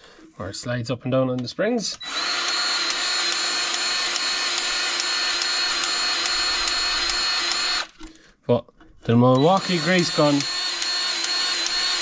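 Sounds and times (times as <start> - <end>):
grease gun motor whining: 2.0 - 8.0, 9.3 - 12.0.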